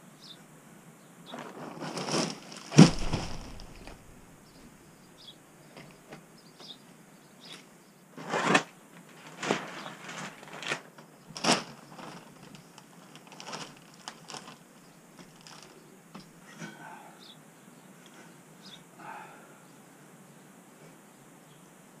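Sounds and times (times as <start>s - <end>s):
insulation and plastic wrap rustling: 1.3s - 4.2s, 8.2s - 16.3s.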